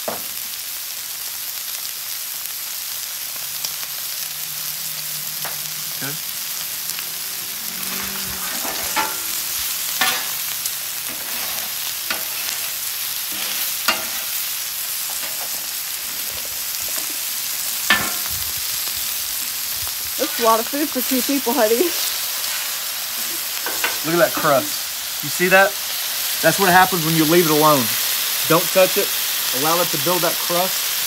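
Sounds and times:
meat sizzling on a griddle: 0:00.0 - 0:31.0
metal spatula scraping steel: 0:07.8 - 0:18.4.

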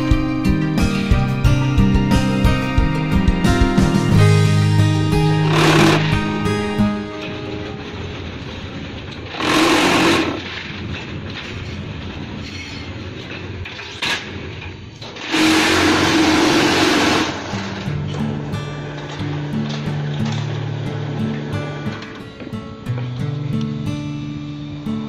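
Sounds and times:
background music: 0:00.0 - 0:08.6, 0:15.4 - 0:25.0
loud bursts of vibration: 0:04.2 - 0:07.0, 0:09.2 - 0:10.6, 0:15.2 - 0:18.5
block making machine running: 0:05.1 - 0:06.5, 0:07.4 - 0:11.8, 0:15.0 - 0:22.1.

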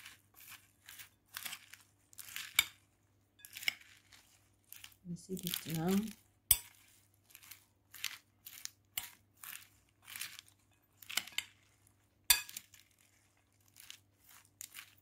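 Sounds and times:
salad leaves rustling and crunching: 0:00.0 - 0:15.0
utensil clinking against glass bowl: 0:06.5 - 0:06.8, 0:12.3 - 0:12.7.

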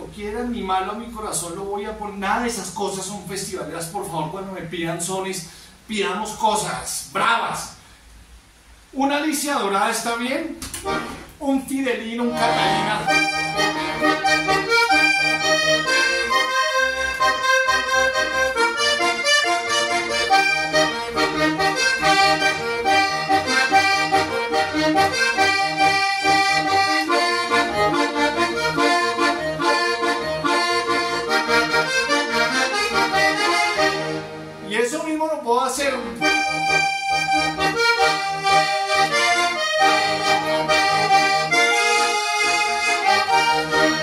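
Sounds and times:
button accordion playing: 0:10.8 - 0:11.3, 0:12.2 - 0:34.8, 0:35.9 - 0:44.0.

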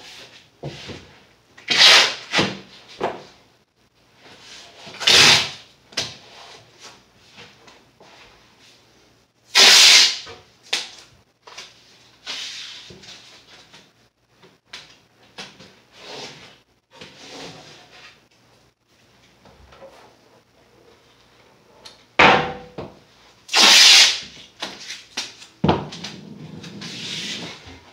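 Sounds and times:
masking tape ripping off roll: 0:01.7 - 0:02.5, 0:05.0 - 0:05.6, 0:09.5 - 0:10.9, 0:23.5 - 0:25.5.

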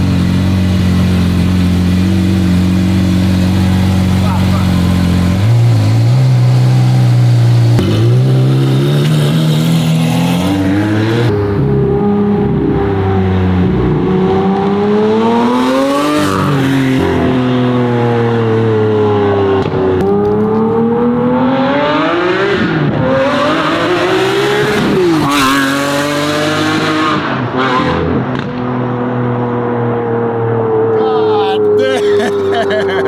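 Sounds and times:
car engine revving under load: 0:00.0 - 0:30.9.

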